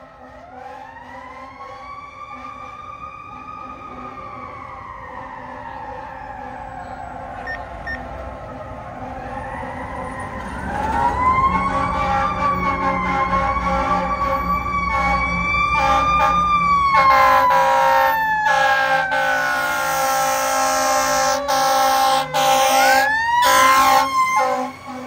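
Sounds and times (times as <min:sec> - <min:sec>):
mechanical siren wailing: 0:00.0 - 0:25.0
air horn blasts: 0:11.5 - 0:25.0.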